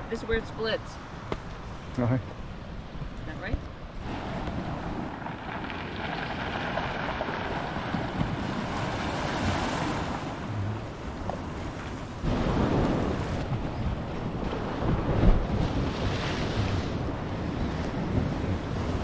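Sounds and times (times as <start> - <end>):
wind buffeting microphone: 2.5 - 19.0
sea waves breaking on rocks: 4.0 - 19.0.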